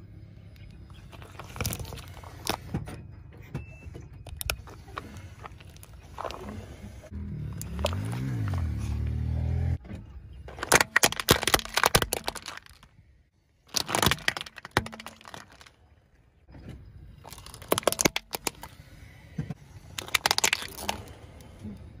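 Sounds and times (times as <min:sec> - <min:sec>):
plastic toys cracking under tire: 0:01.1 - 0:02.7, 0:07.6 - 0:08.7, 0:10.5 - 0:13.0, 0:13.7 - 0:15.8, 0:17.2 - 0:18.8, 0:19.9 - 0:21.5.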